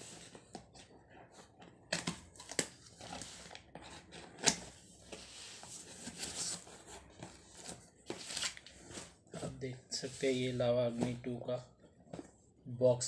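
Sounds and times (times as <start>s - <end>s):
packing paper rustling: 5.6s - 10.4s.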